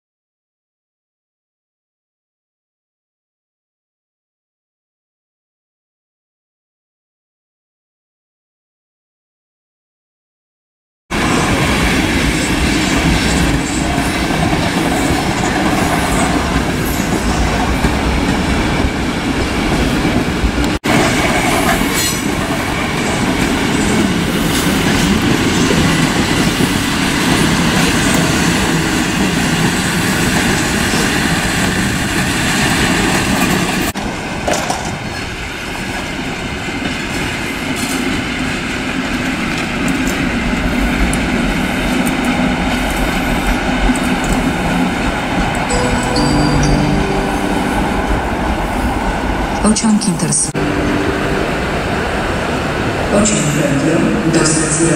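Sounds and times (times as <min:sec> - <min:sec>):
train wheels rumbling on rails: 0:11.1 - 0:46.8.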